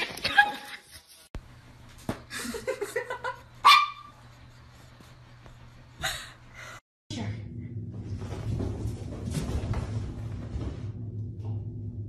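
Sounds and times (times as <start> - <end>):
small dog barking: 3.6 - 4.2.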